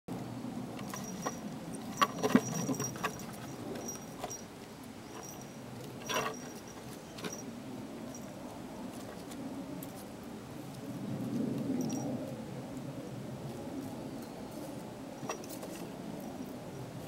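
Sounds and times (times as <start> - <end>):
cat paw taps and rustles: 0.8 - 7.4.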